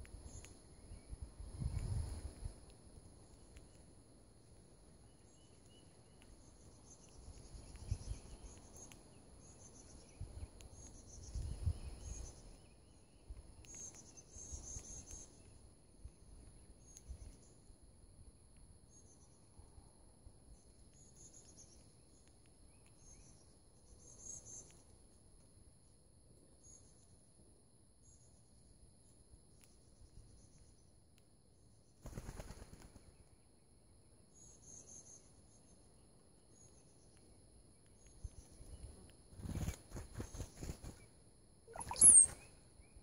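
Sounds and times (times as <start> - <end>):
small birds chirping: 0.0 - 27.3, 28.0 - 43.0
insect trilling: 41.7 - 42.9.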